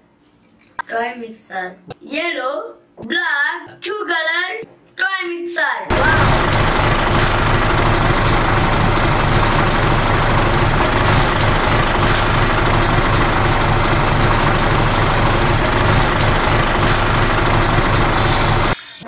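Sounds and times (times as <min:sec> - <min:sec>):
truck engine idling: 0:05.9 - 0:18.8.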